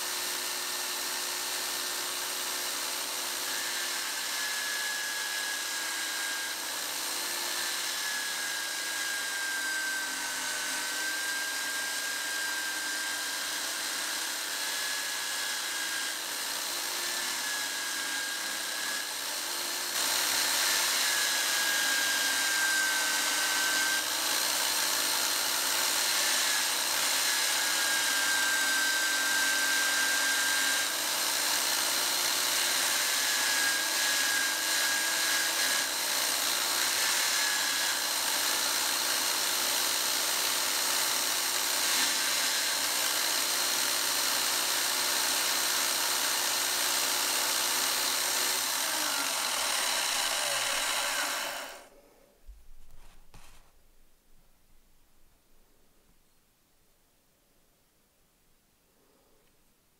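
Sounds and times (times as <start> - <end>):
drill press motor whine: 0.1 - 51.9.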